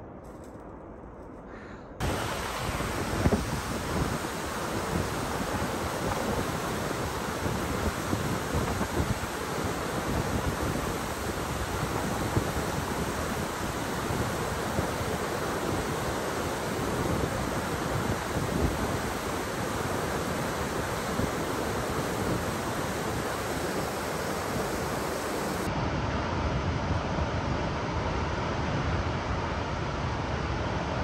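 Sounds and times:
roar of whitewater: 2.0 - 25.7
wind on microphone: 2.0 - 25.7.

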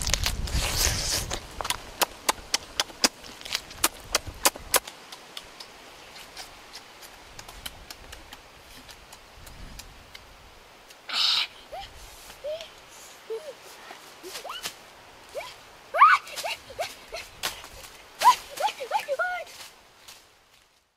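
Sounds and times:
person biting and chewing: 0.0 - 6.8.

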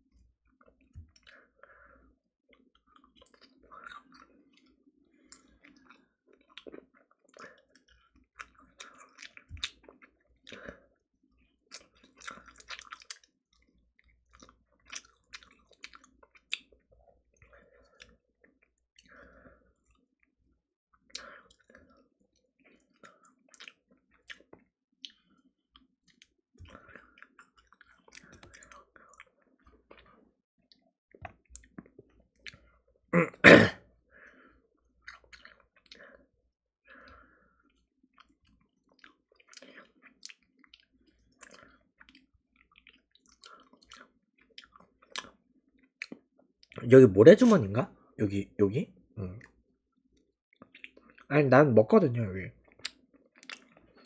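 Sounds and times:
person chewing: 2.5 - 20.0, 21.0 - 33.3, 34.2 - 36.3, 36.9 - 46.8, 50.5 - 51.3, 52.6 - 54.0
small clicks and smacks: 22.7 - 32.7, 52.6 - 54.0.

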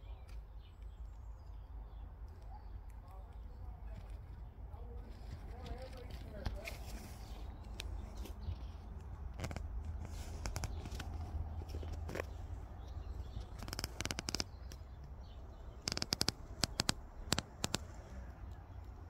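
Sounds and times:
phone microphone handling clicks: 13.2 - 18.0.

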